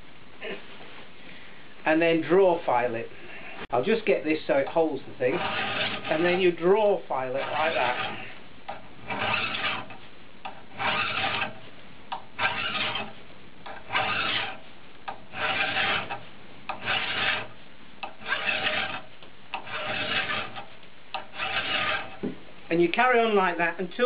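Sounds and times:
file rasping on metal: 5.2s - 6.6s, 7.2s - 22.2s.

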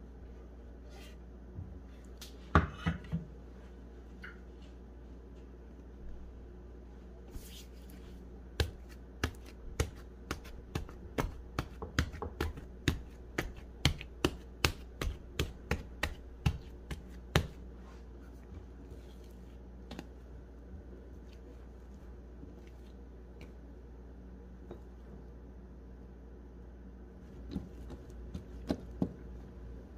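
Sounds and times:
hands slapping bread dough: 7.3s - 18.0s, 18.6s - 20.6s.

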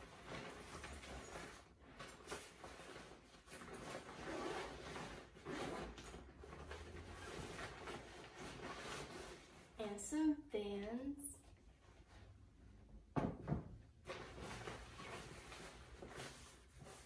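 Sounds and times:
rummaging in a backpack: 0.0s - 9.8s.

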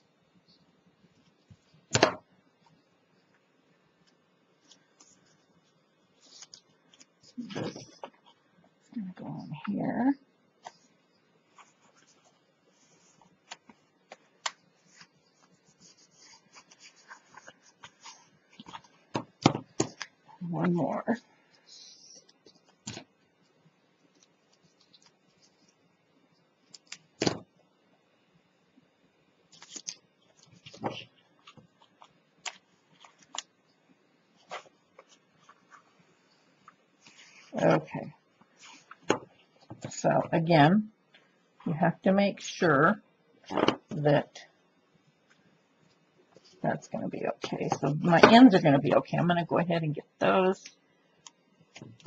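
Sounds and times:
paper rustling: 6.2s - 8.3s, 11.5s - 20.2s, 29.5s - 33.5s, 34.4s - 37.9s, 38.5s - 40.0s.

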